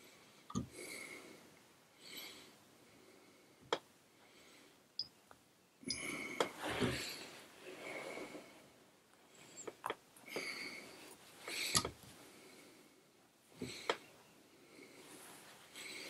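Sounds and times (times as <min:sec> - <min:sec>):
soft rustles of handling: 0:13.7 - 0:16.0.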